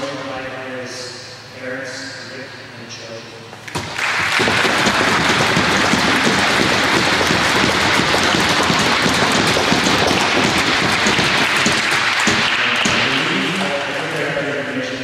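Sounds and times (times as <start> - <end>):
crowd applauding: 3.7 - 14.0.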